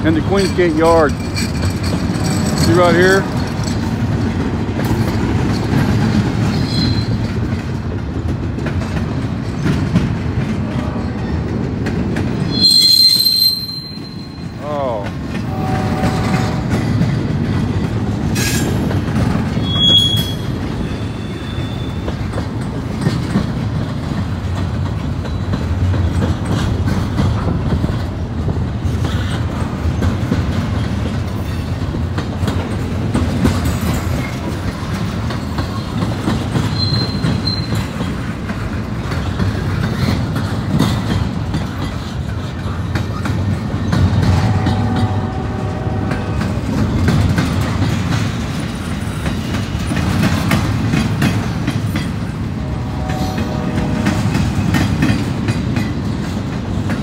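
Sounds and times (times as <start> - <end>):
freight train rumbling past: 0.0 - 57.0
high wheel squeals: 6.5 - 7.3, 12.5 - 14.6, 19.5 - 22.1, 36.7 - 38.0.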